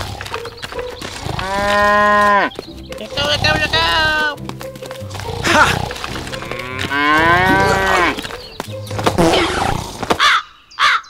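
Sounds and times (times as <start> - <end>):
cow mooing: 1.1 - 2.5, 5.1 - 8.3.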